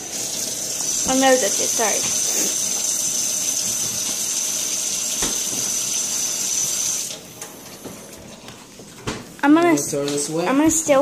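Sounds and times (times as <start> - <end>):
tap running into sink: 5.0 - 6.2.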